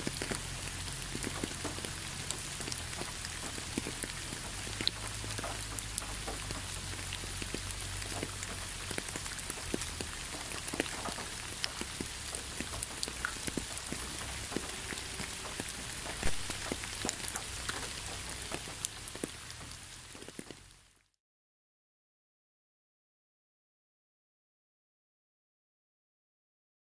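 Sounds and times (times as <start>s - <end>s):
close raindrops striking: 0.0s - 21.2s
rain on leaves and ground: 0.0s - 21.2s.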